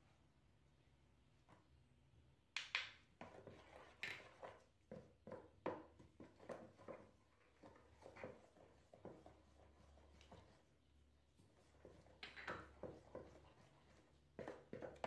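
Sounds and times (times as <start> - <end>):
wooden spoon stirring batter: 3.0 - 15.0.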